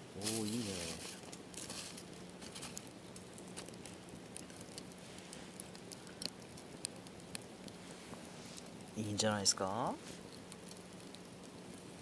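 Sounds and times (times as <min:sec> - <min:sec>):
faint steady hiss: 0:00.0 - 0:12.0
wood fire crackling and popping: 0:00.0 - 0:12.0.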